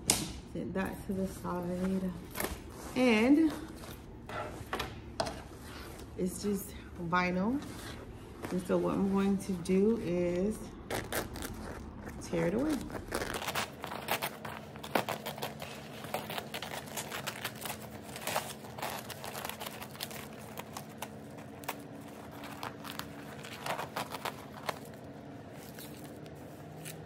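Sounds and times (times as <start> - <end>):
vinyl film crackling and ripping: 10.8 - 27.0.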